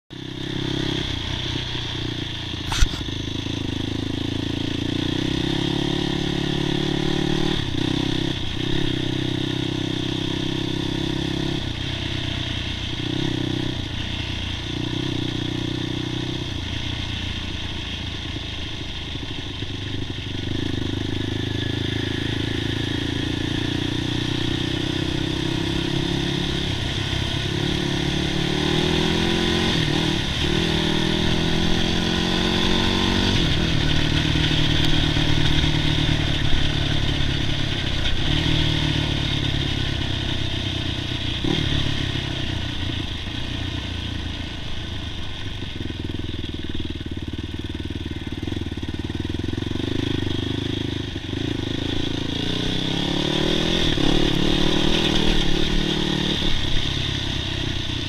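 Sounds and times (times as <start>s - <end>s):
quad engine revving: 2.6s - 11.6s, 20.5s - 39.8s, 49.2s - 57.7s.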